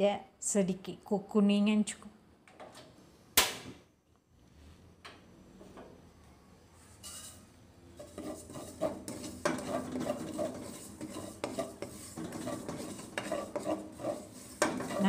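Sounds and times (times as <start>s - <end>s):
wooden spatula scraping seeds in wok: 7.0s - 15.0s
spatula knocking on pan: 8.2s - 15.0s.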